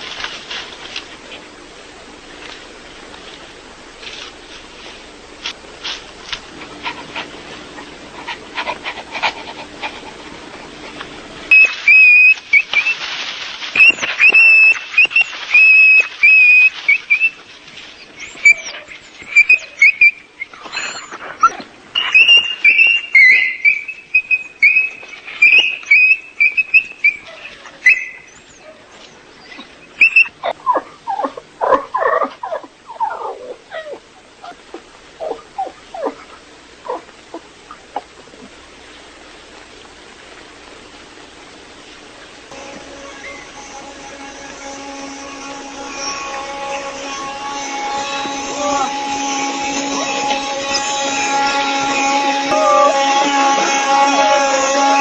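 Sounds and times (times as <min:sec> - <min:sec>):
dog whining and yelping: 0:11.5 - 0:13.0, 0:13.8 - 0:17.4, 0:18.0 - 0:38.1.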